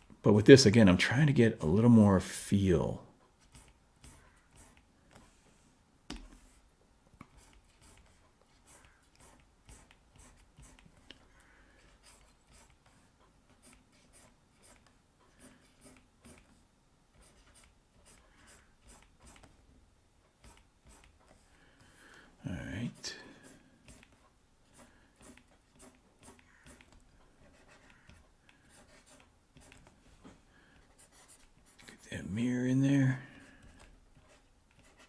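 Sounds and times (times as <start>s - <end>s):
stylus scratching on tablet: 3.4s - 5.4s, 7.2s - 11.2s, 11.8s - 16.6s, 17.2s - 19.6s, 20.4s - 21.5s, 22.8s - 30.0s, 30.8s - 32.8s, 33.4s - 35.0s.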